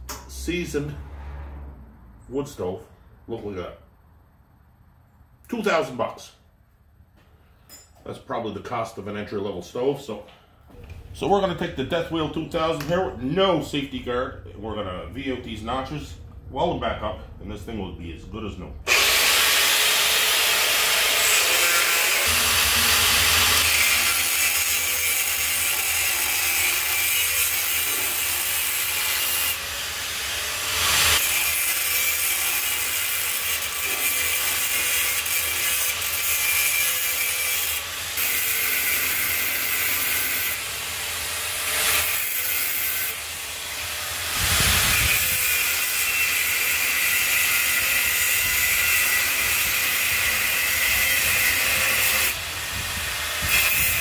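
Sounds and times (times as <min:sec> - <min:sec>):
angle grinder grinding metal: 0:18.9 - 0:54.0.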